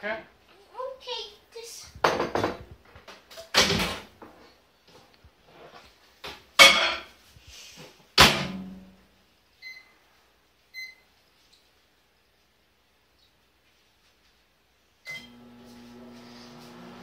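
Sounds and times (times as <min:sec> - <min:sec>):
knocks: 0:02.0 - 0:02.7.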